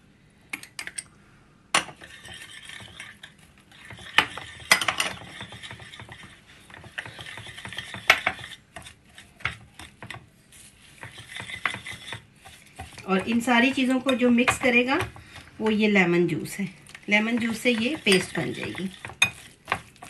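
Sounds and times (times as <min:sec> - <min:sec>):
whisk clicking in ceramic bowl: 0:01.9 - 0:10.2, 0:11.0 - 0:15.4, 0:17.1 - 0:20.0.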